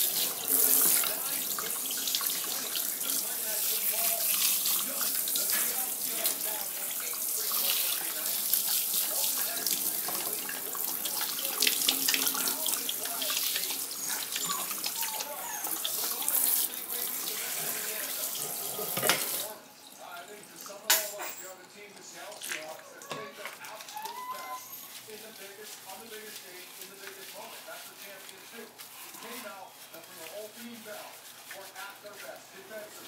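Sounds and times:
water splashing into metal sink: 0:00.0 - 0:14.9, 0:15.8 - 0:19.6
sink sprayer running: 0:00.0 - 0:19.5.

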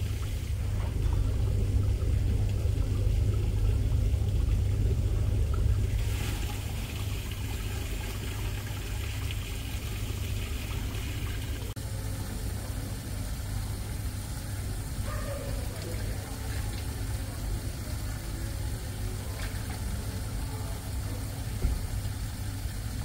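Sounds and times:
steady low rumble: 0:00.0 - 0:11.8.

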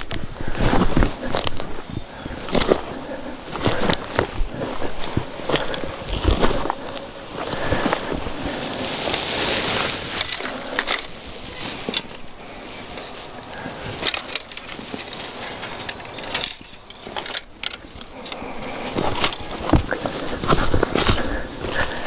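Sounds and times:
boots shifting on stones: 0:00.0 - 0:22.0
fishing tackle clicks and clinks: 0:10.2 - 0:12.4, 0:14.0 - 0:19.8.

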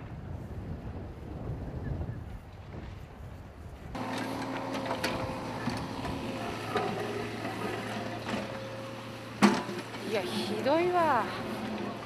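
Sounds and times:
low wind-like rumble: 0:00.0 - 0:04.0
excavator engine humming: 0:04.0 - 0:12.0.

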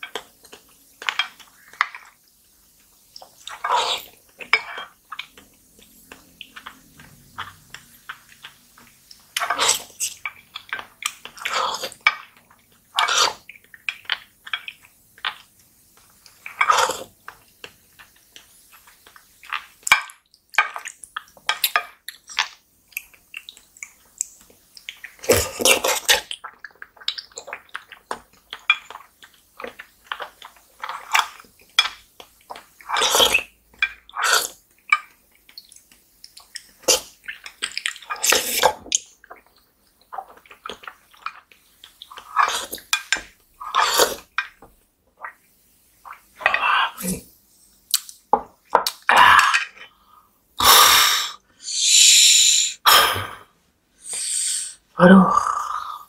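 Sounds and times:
lip smacks: 0:47.9 - 0:48.2.

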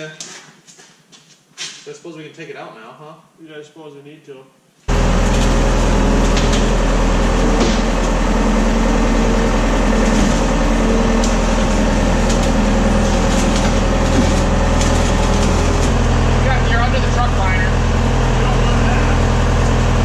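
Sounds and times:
skid steer engine running: 0:04.9 - 0:20.0.

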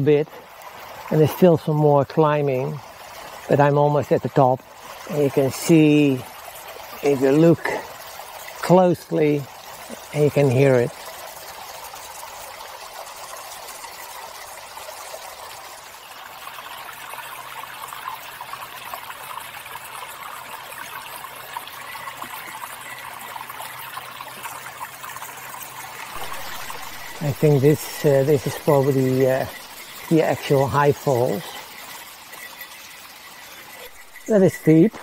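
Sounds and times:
waterfall rushing: 0:26.0 - 0:31.8, 0:33.4 - 0:35.0.

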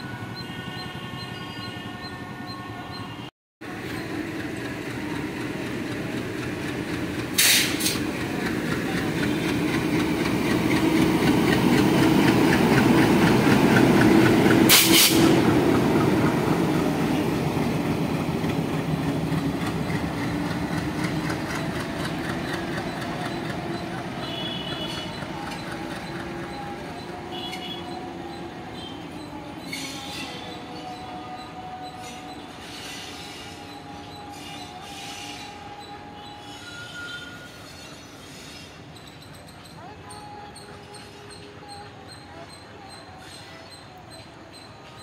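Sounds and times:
diesel locomotive engine rumble: 0:00.0 - 0:45.0
short sharp hisses: 0:14.7 - 0:15.3.

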